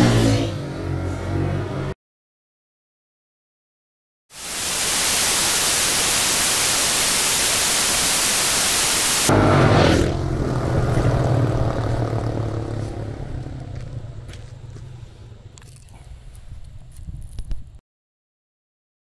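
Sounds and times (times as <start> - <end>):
loud static hiss: 4.3 - 9.3
low rumble: 9.3 - 17.8.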